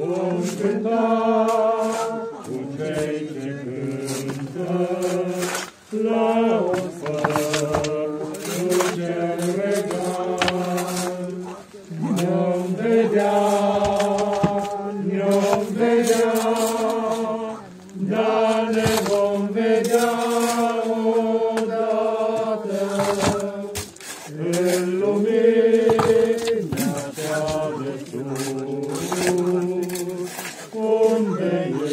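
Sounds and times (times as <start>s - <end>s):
slow funeral chant: 0.0s - 31.9s.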